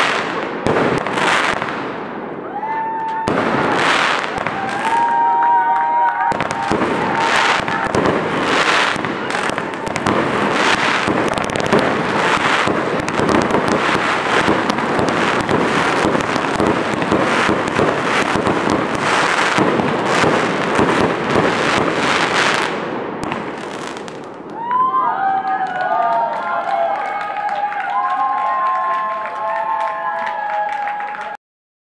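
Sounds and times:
fireworks crackling and banging: 0:00.0 - 0:24.8.

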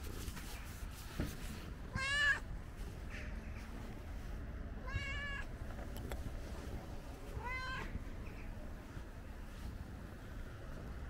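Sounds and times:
cat meowing: 0:01.9 - 0:02.4, 0:04.8 - 0:05.5, 0:07.3 - 0:08.0.

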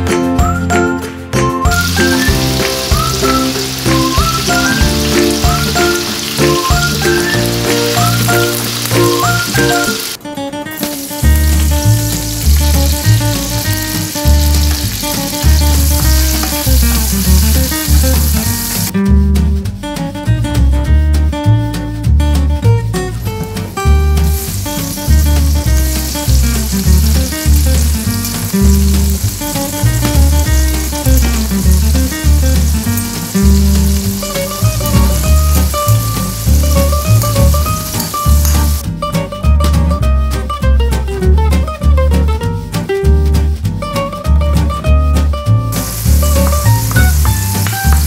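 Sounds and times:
background music with bass line: 0:00.0 - 0:48.0
garlic and onion sizzling in oil: 0:01.6 - 0:18.9, 0:23.4 - 0:38.8, 0:45.7 - 0:48.0.

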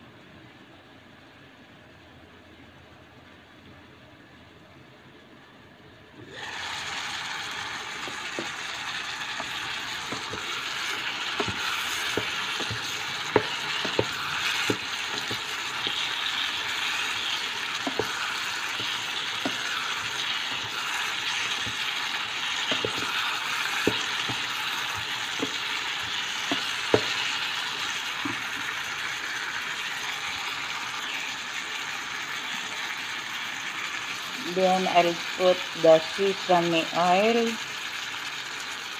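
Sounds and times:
vegetables sizzling in a skillet: 0:06.2 - 0:38.9
spatula scraping a pan: 0:09.3 - 0:27.4.

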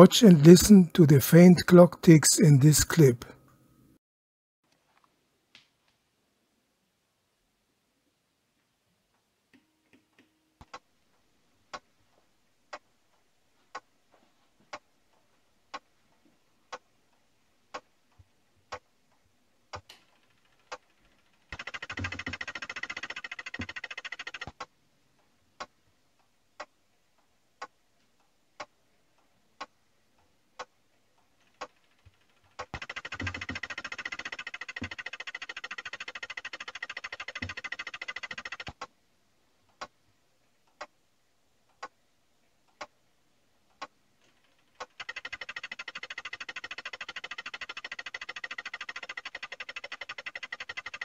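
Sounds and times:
clock ticking: 0:00.0 - 0:03.3, 0:18.6 - 0:18.9, 0:19.7 - 0:24.7, 0:25.6 - 0:26.8, 0:27.6 - 0:38.9, 0:40.7 - 0:41.0, 0:43.7 - 0:51.0
electric clock buzzing: 0:19.7 - 0:24.7, 0:31.4 - 0:38.9, 0:44.3 - 0:51.0.

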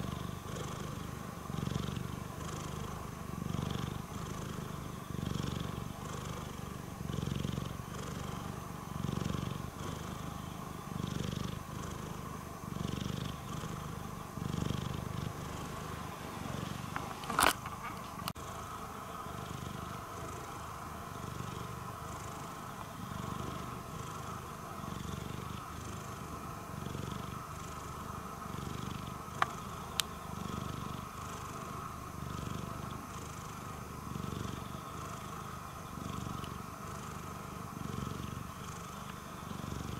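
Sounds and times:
cat purring: 0:00.0 - 0:39.9
faint ticks: 0:22.8 - 0:23.0, 0:29.4 - 0:30.2, 0:36.3 - 0:36.6, 0:38.9 - 0:39.2.

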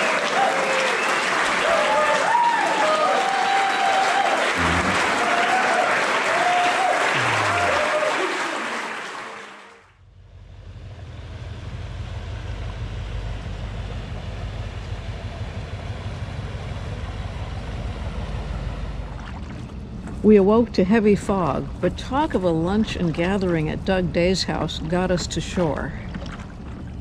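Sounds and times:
audience applauding and cheering: 0:00.0 - 0:09.9
boat engine droning: 0:03.3 - 0:05.9, 0:06.5 - 0:08.0, 0:10.0 - 0:27.0.

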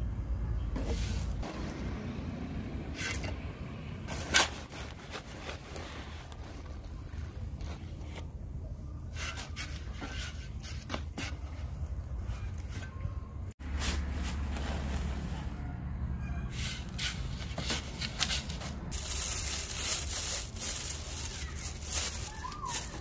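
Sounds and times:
metal scoop scraping granules: 0:16.5 - 0:23.0.

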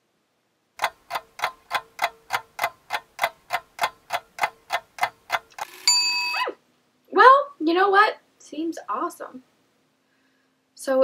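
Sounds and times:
clock ticking: 0:00.8 - 0:05.7
noisy ringing: 0:05.6 - 0:06.4.

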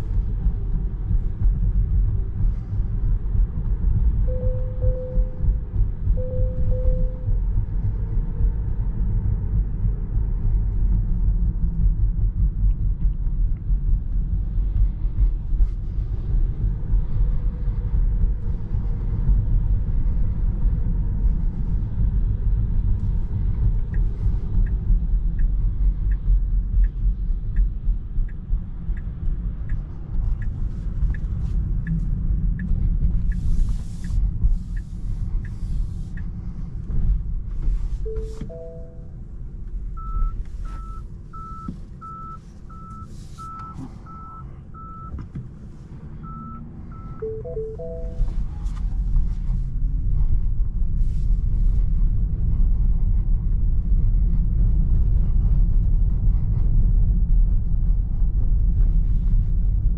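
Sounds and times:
road and tyre rumble in car: 0:00.0 - 0:59.9
turn-signal indicator ticking: 0:04.3 - 0:05.6, 0:06.2 - 0:07.4, 0:24.6 - 0:29.8.

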